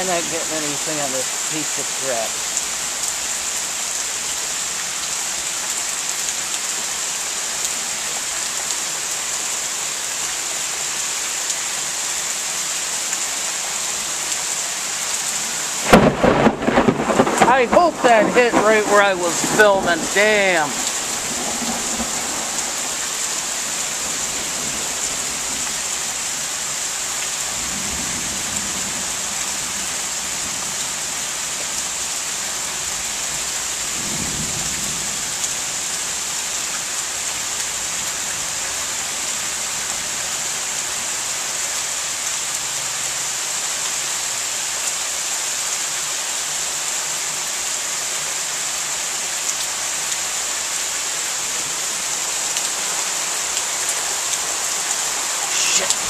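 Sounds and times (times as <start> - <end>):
heavy rain pouring: 0.0 - 56.0
thunder rumbling: 15.8 - 23.0.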